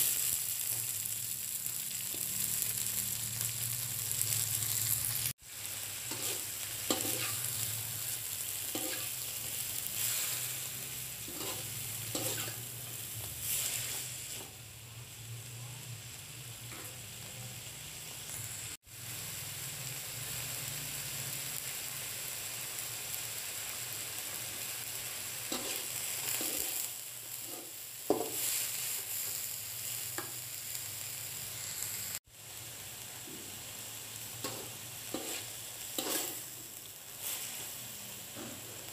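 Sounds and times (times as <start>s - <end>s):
bean sprouts sizzling in a wok: 0.0s - 38.9s
spatula scraping a pan: 6.1s - 7.5s, 8.7s - 10.5s, 11.2s - 12.6s, 25.5s - 26.8s, 34.4s - 36.4s.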